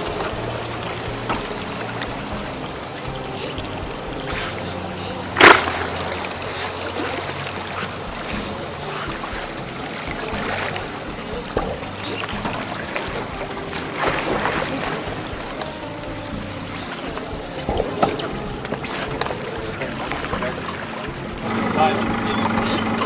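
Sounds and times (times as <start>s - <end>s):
loud splash: 0.0s - 23.0s
water splashing and trickling: 0.0s - 23.0s.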